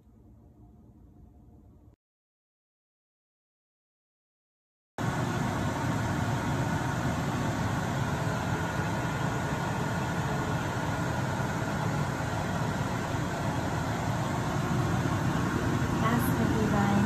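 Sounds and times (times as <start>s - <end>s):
kitchen exhaust fan running: 5.0s - 17.0s.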